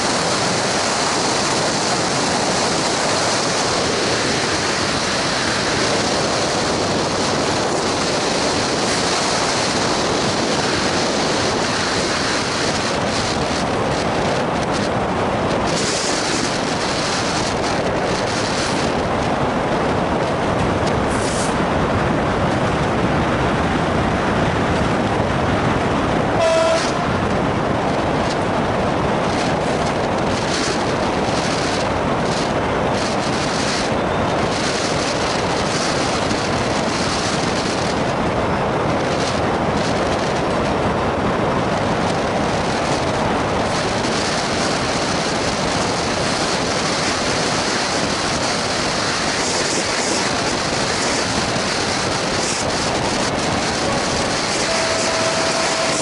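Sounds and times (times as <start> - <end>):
diesel locomotive engine: 0.0 - 56.0
road and wind noise: 0.0 - 56.0
train horn toot: 26.4 - 27.0, 54.5 - 56.0.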